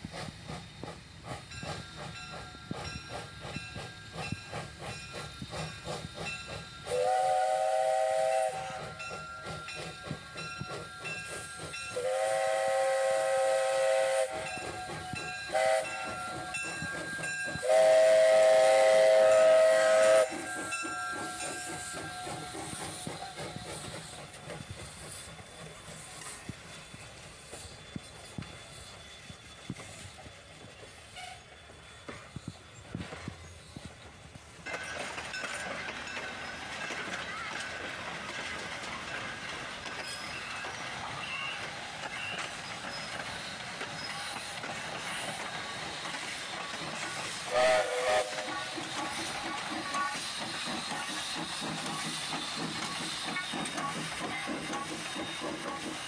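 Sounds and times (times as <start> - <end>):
steam locomotive chuffing: 0.0 - 56.0.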